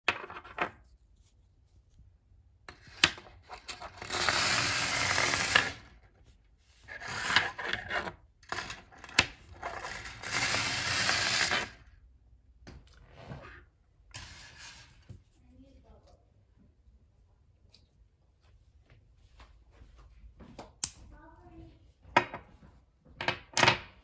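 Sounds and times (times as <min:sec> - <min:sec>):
battery rattling along wire coil: 0:03.6 - 0:05.9, 0:09.5 - 0:11.8.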